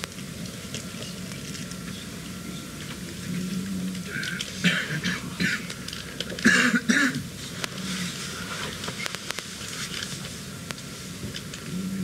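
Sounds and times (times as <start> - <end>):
person clearing throat: 4.6 - 5.7, 6.4 - 7.3.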